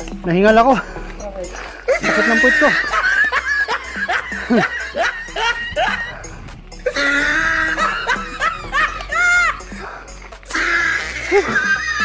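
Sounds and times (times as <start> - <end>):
background music: 0.0 - 12.0
person laughing: 0.8 - 9.9, 11.0 - 12.0.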